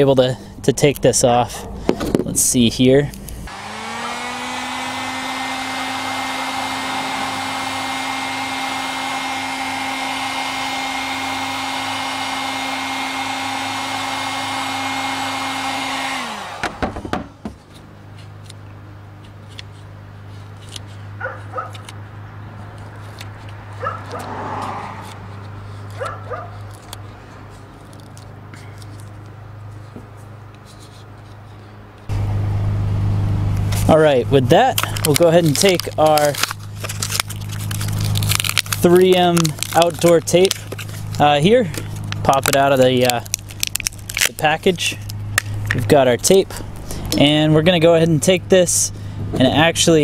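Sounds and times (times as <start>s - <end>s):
heat gun fan running: 0.0s - 50.0s
tape scraping and peeling: 19.2s - 32.1s, 33.6s - 48.1s.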